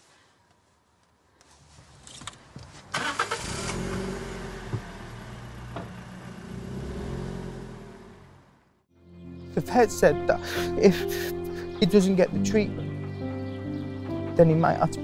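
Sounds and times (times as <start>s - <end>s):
car engine starting and idling: 2.1s - 8.8s.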